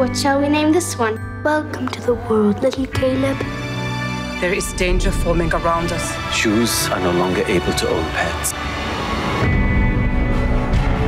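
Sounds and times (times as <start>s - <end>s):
dark tense trailer music: 0.0s - 11.0s.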